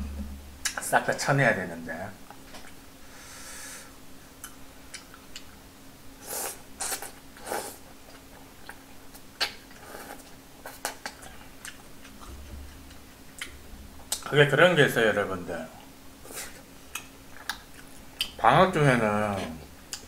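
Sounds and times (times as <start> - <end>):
chewing: 8.0 - 14.3, 16.4 - 18.4.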